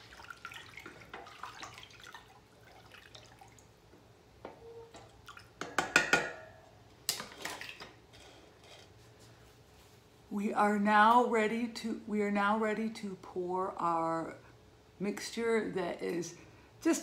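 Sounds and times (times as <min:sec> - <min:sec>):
liquid swirling: 0:00.0 - 0:03.7.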